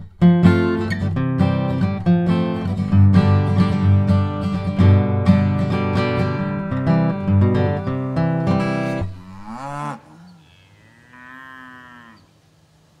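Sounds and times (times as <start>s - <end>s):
strummed acoustic guitar: 0.0s - 9.2s
cattle mooing: 8.2s - 12.3s.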